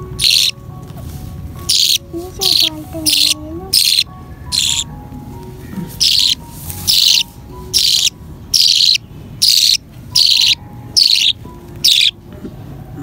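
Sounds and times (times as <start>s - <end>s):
budgerigar chick begging calls: 0.0s - 0.6s, 1.6s - 5.0s, 5.8s - 12.2s.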